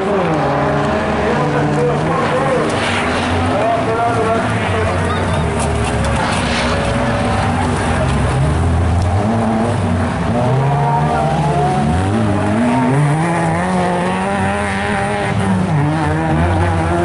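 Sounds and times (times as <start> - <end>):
racing car engines revving: 0.0 - 17.0.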